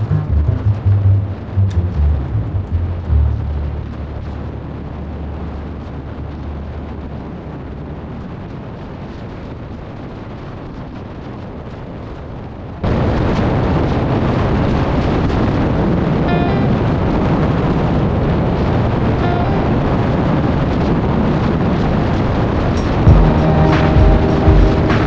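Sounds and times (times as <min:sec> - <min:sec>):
motorcycle engine rumbling: 0:00.0 - 0:05.3, 0:22.8 - 0:25.0
wind rushing over microphone: 0:00.0 - 0:25.0.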